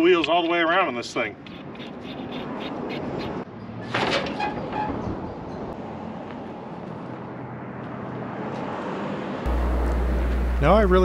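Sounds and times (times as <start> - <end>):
low steady rumble: 9.5 - 11.0
steady rushing hiss: 9.5 - 11.0.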